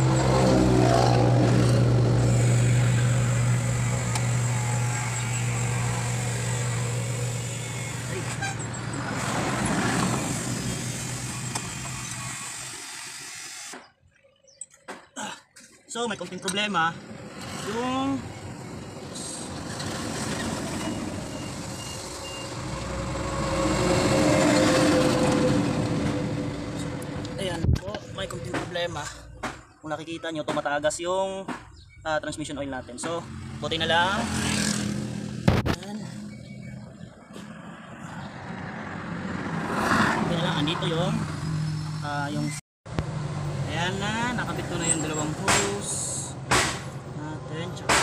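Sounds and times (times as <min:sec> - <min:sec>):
heavy truck passing: 0:00.0 - 0:12.0, 0:17.0 - 0:27.5, 0:33.2 - 0:42.0.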